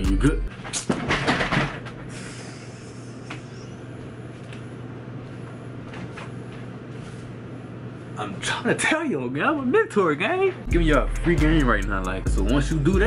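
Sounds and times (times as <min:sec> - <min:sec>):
room hum: 0:00.0 - 0:13.0.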